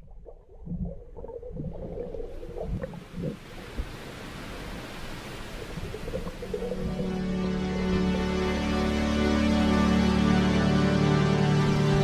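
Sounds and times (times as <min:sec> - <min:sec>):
muffled underwater sloshing: 0:00.0 - 0:08.4.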